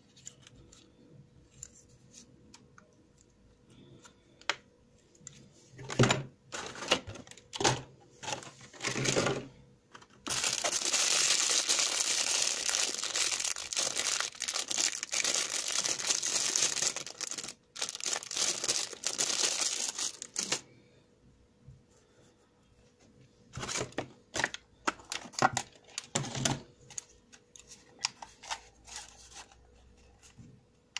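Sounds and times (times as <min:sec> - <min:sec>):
plastic bag crinkling: 0:10.2 - 0:20.7.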